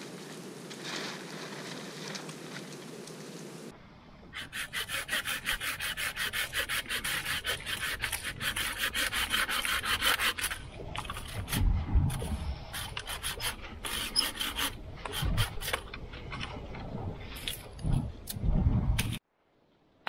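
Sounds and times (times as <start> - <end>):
hand saw cutting branch: 4.4 - 11.6, 12.2 - 15.8.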